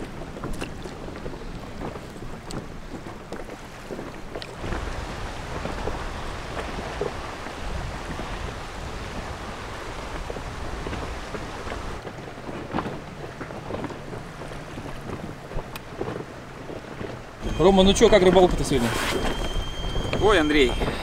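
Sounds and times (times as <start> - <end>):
small knocks and splashes: 0.0 - 4.9
water lapping against boat: 0.0 - 21.0
wind on microphone: 0.0 - 21.0.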